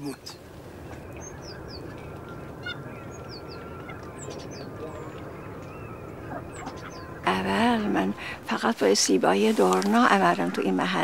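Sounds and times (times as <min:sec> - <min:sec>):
flock of ducks calling: 0:00.4 - 0:11.0.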